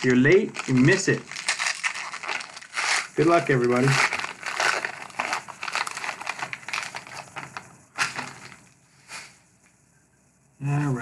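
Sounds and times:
wrapper crinkling as torn open: 0.0 - 8.6.

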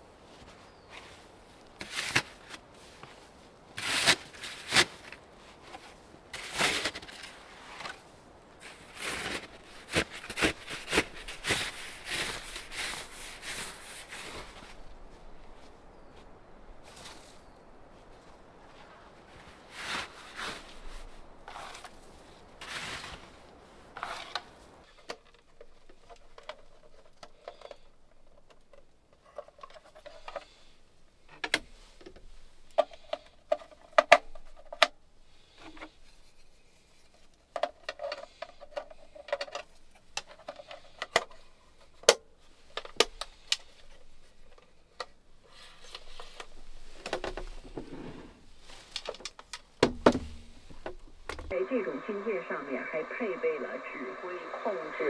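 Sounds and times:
rustling strokes: 0.1 - 25.0.

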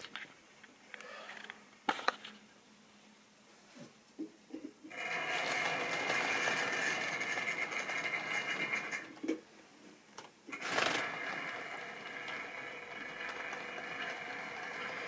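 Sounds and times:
model train motor whirring: 4.9 - 9.1, 10.5 - 15.0
wheels rolling on rails: 4.9 - 9.4, 10.5 - 15.0.

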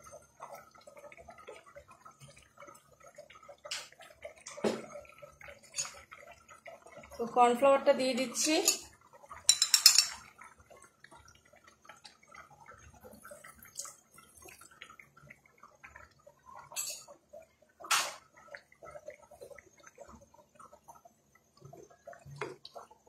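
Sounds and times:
gravy bubbling faintly: 0.0 - 23.0
liquid splashing into pan: 3.3 - 7.1, 8.6 - 10.8, 11.7 - 20.7.

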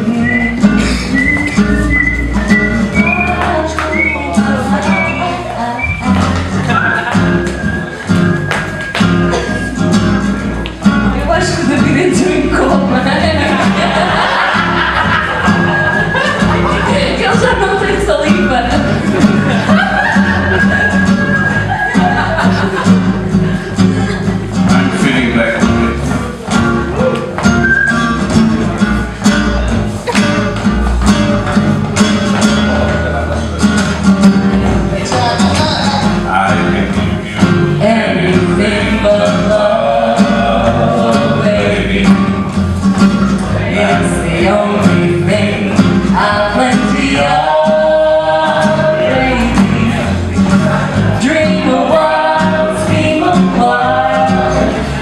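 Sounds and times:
woman singing: 0.0 - 6.6, 11.2 - 13.6, 16.9 - 19.0, 37.8 - 42.0, 43.7 - 50.1, 51.2 - 54.9
acoustic bass guitar plucking: 0.0 - 55.0
classical guitar: 0.0 - 55.0
gypsy jazz guitar: 0.0 - 55.0.

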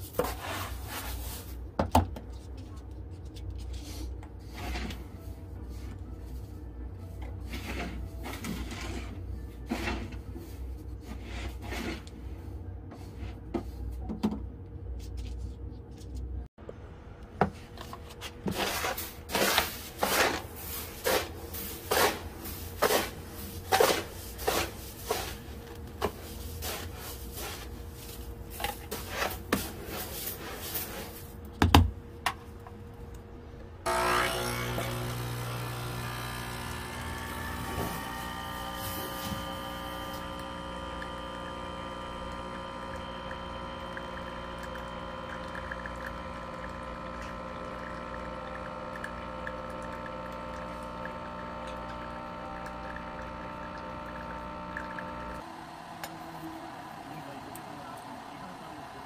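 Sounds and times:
litter scoop scraping through litter: 18.4 - 31.3.

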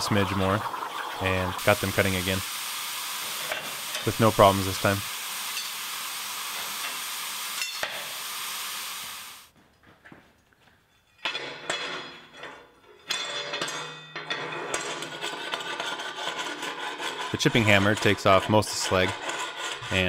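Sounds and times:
plasma torch hissing: 1.5 - 9.5
steel pieces clanking and scraping: 5.4 - 5.9, 7.6 - 8.0, 10.9 - 17.6.

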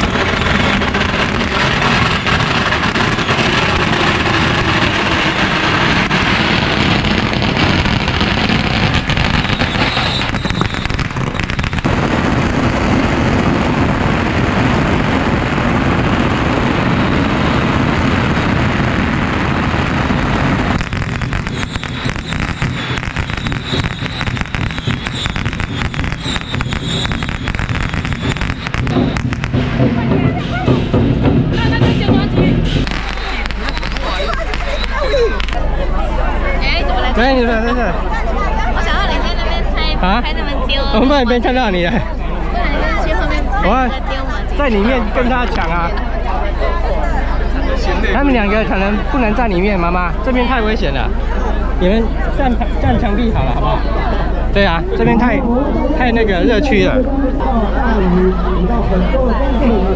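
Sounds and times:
firecrackers crackling: 0.0 - 35.7.

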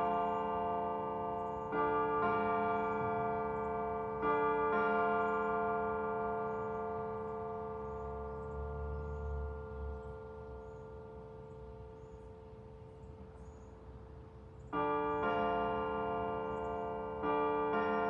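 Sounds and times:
carillon bells ringing: 0.0 - 10.8.

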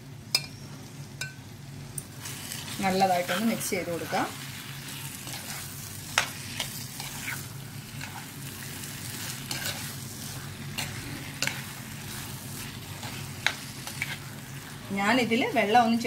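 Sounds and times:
food sizzling in a pan: 0.0 - 16.0
spoon scraping a pan: 2.2 - 14.8.

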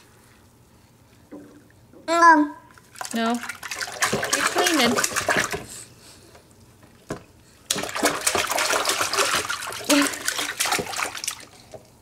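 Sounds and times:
bath water splashing and pouring: 2.8 - 5.8, 6.9 - 11.8.

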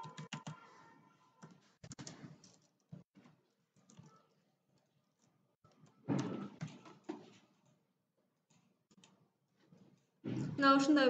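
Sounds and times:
computer keyboard typing: 0.0 - 0.8, 1.4 - 7.1, 8.5 - 9.2.

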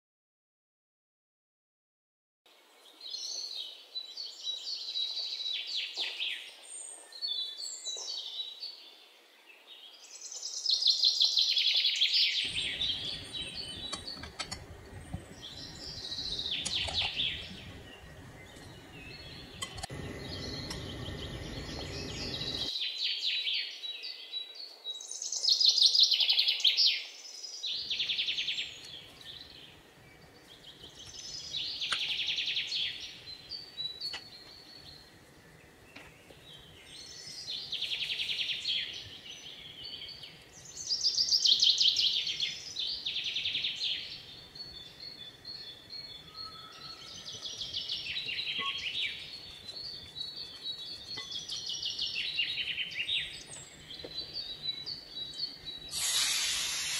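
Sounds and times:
birds chirping and singing: 2.8 - 56.9
low steady noise: 12.4 - 22.7.

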